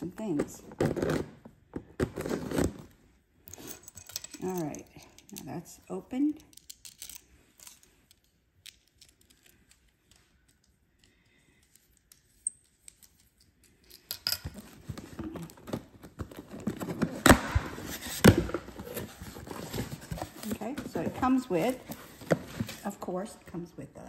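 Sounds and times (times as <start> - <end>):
cardboard rustling and scraping: 0.8 - 3.0, 14.7 - 23.1.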